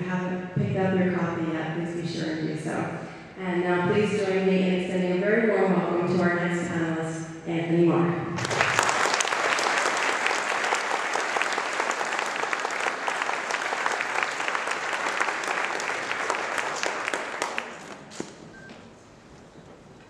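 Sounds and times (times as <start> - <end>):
audience applauding: 8.4 - 18.4.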